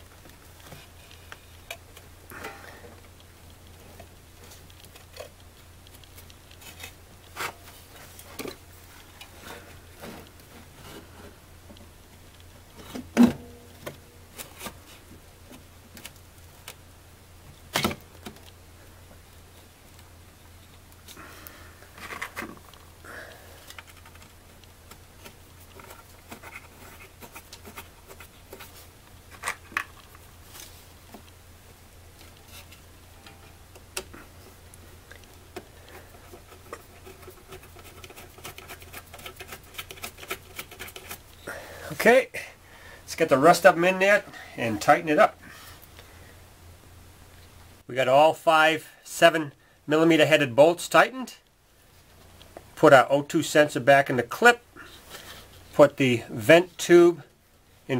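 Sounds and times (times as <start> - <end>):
scraping and rubbing: 3.6 - 15.1, 23.6 - 31.3, 35.1 - 41.4.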